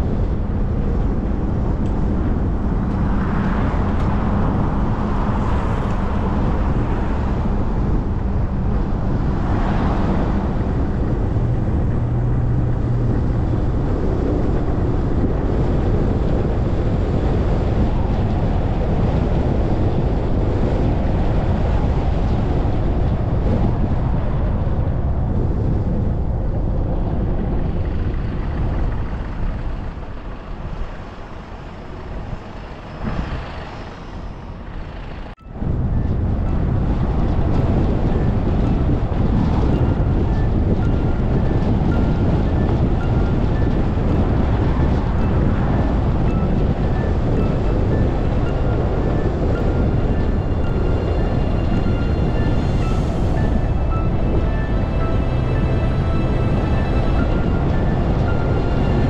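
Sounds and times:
car tyre and engine rumble: 0:00.0 - 0:59.0.

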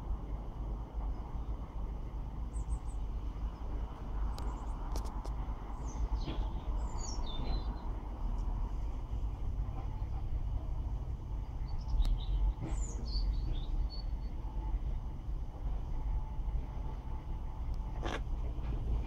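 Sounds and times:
steady low rumble: 0:00.0 - 0:19.0
small birds chirping: 0:05.7 - 0:07.8, 0:11.4 - 0:14.2.

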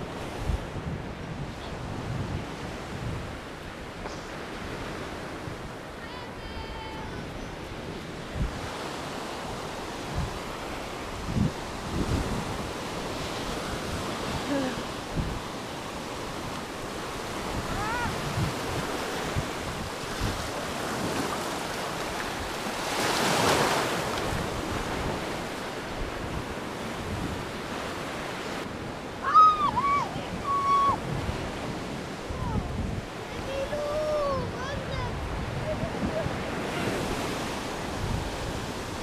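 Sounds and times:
surf washing onto sandy shore: 0:00.0 - 0:39.0
wind buffeting microphone: 0:00.0 - 0:39.0
children calling out: 0:17.7 - 0:18.2, 0:29.2 - 0:31.0.

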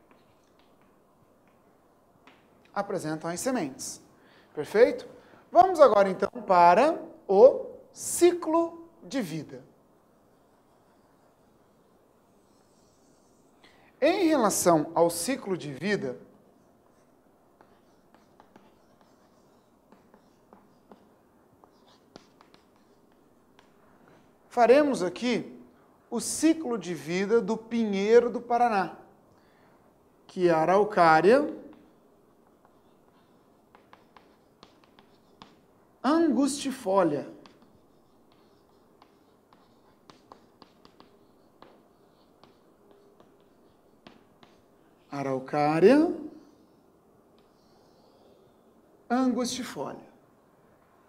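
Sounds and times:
chalk tapping and scratching on board: 0:00.0 - 0:02.5, 0:10.3 - 0:13.8, 0:15.1 - 0:25.2, 0:30.8 - 0:45.1, 0:46.2 - 0:48.1.

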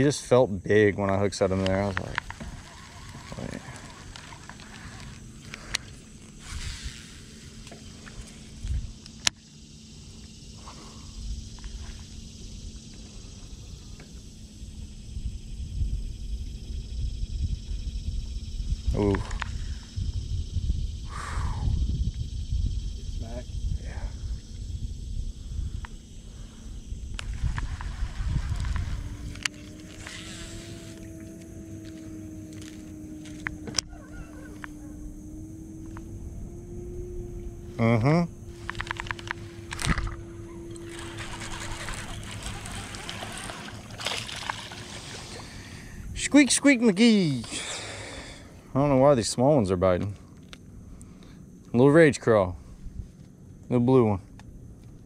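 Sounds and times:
low rumbles of handling: 0:00.0 - 0:21.0, 0:22.0 - 0:47.6
electric motor humming: 0:01.5 - 0:10.4, 0:26.8 - 0:46.2
sharp clicks: 0:38.6 - 0:40.2.

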